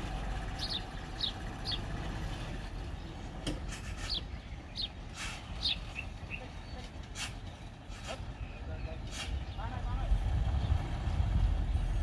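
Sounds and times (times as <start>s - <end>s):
heavy machine engine running: 0.0s - 3.6s
bird chirping: 0.5s - 3.4s, 4.0s - 10.0s.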